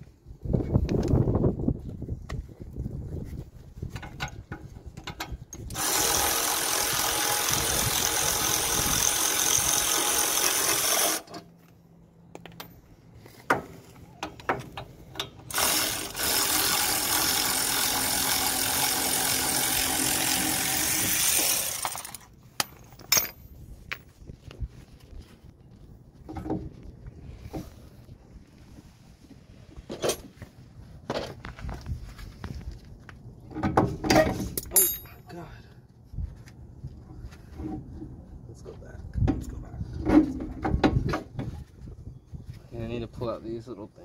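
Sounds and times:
power ratchet running: 5.7s - 11.3s, 15.5s - 22.3s
metal clinks: 21.8s - 24.0s, 34.6s - 35.3s.

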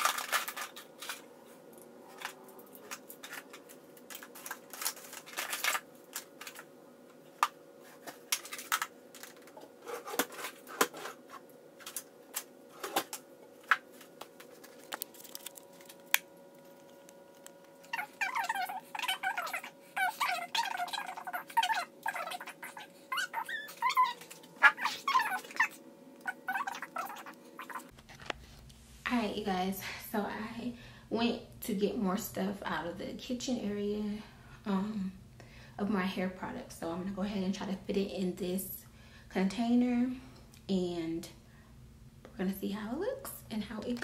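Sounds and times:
plastic items clicking and clattering: 0.0s - 1.3s, 2.1s - 6.7s, 8.0s - 13.8s
faint steady hum: 0.0s - 44.0s.

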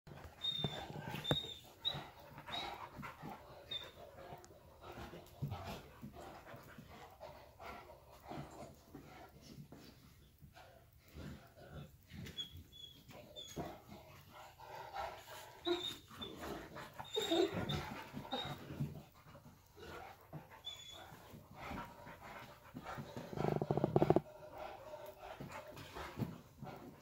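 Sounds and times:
dogs panting: 0.1s - 27.0s
high dog squeaks: 0.2s - 4.0s, 15.6s - 18.6s.

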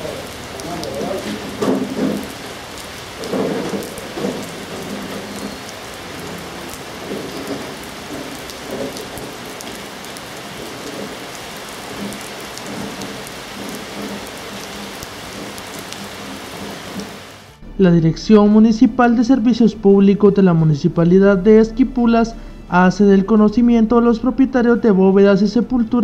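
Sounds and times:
sharp raindrop ticks: 0.0s - 17.5s
steady rain falling: 0.0s - 17.6s.

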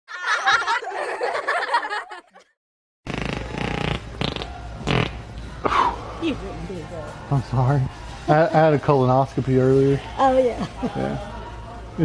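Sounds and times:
rasping fart sound: 3.0s - 5.3s.

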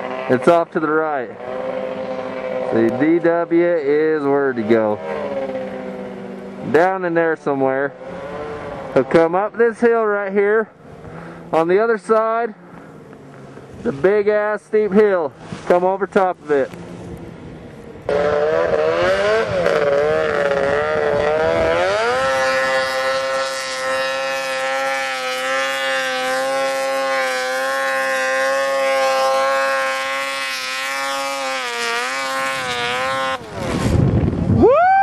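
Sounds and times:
snowmobile engine revving: 0.0s - 17.4s, 18.0s - 35.0s.

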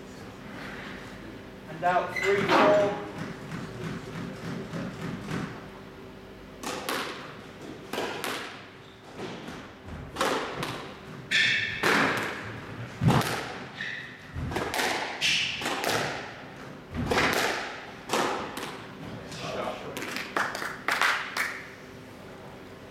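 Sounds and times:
shoes squeaking on court floor: 2.0s - 5.4s, 8.8s - 9.6s, 13.7s - 14.4s
squash ball thuds: 7.9s - 13.7s, 14.4s - 18.8s.

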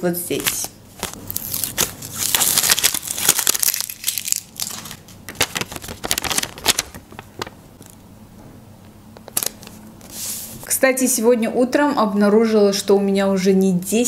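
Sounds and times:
paper crinkling and rustling: 0.4s - 8.0s, 9.2s - 10.6s.

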